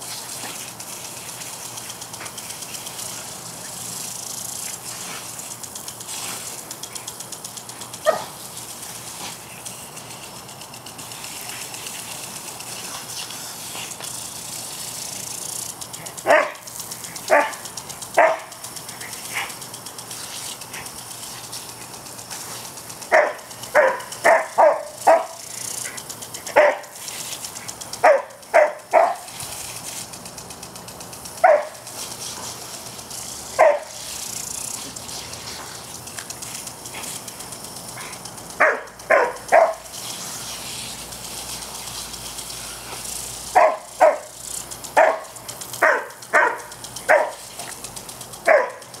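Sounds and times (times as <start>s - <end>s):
sprinkler hissing: 0.0s - 49.0s
dog barking: 8.0s - 8.3s, 16.2s - 16.6s, 17.3s - 17.6s, 18.2s - 18.5s, 23.1s - 25.4s, 26.6s - 26.9s, 28.0s - 29.3s, 31.4s - 31.8s, 33.6s - 33.9s, 38.6s - 39.8s, 43.5s - 44.3s, 45.0s - 47.4s, 48.4s - 48.9s.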